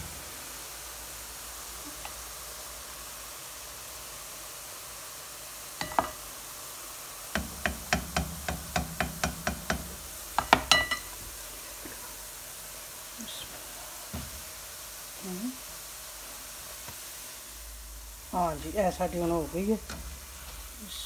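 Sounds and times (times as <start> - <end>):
spoon tapping a metal ladle: 5.8 - 6.2, 10.4 - 11.1.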